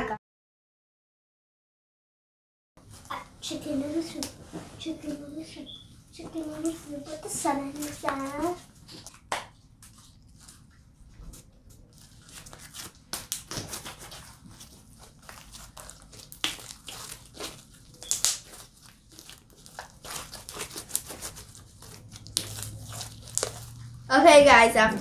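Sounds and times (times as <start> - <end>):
sticky slime clicks and crackles: 15.2 - 23.8.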